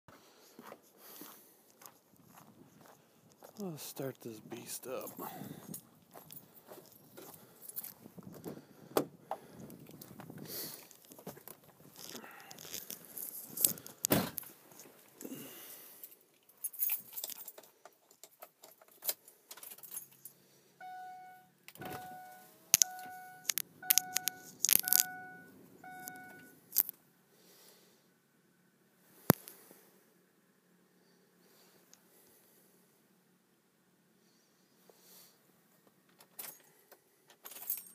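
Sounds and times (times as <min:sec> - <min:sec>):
keys jangling: 0:16.6 - 0:20.3, 0:37.4 - 0:37.9
dashboard warning chime: 0:20.8 - 0:26.6
sharp clicks: 0:22.8 - 0:25.2.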